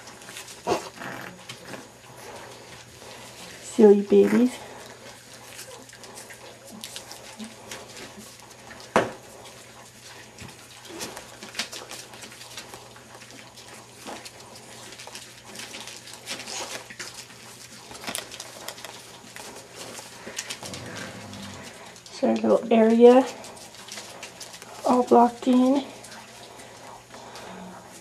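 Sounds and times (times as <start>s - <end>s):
puppies scrabbling on newspaper: 0.0s - 28.0s
puppy grunts and whimpers: 0.2s - 2.5s, 20.3s - 22.0s.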